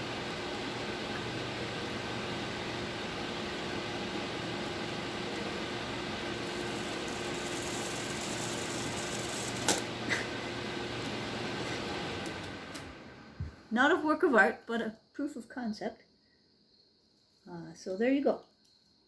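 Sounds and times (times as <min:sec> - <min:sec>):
electric fan blowing: 0:00.0 - 0:14.7.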